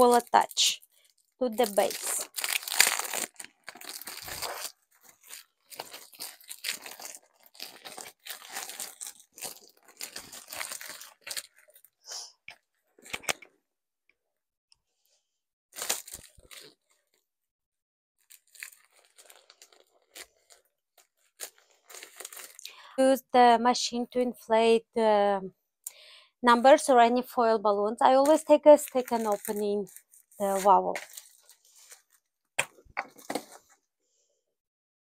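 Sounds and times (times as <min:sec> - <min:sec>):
foil balloon crinkling: 0:00.0 - 0:12.0, 0:15.8 - 0:17.2, 0:18.2 - 0:22.7, 0:28.2 - 0:32.3.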